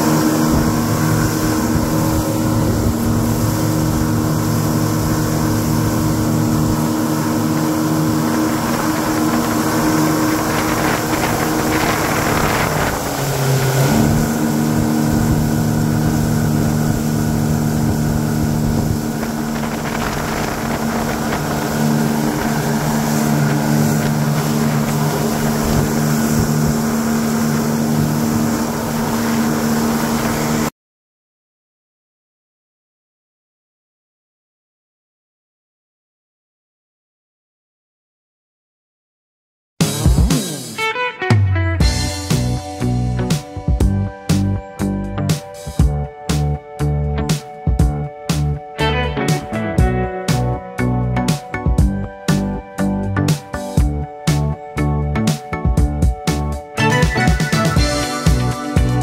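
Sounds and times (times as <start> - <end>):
motorboat engine running: 0.0 - 30.7, 41.8 - 59.0
wind on microphone: 0.0 - 30.7.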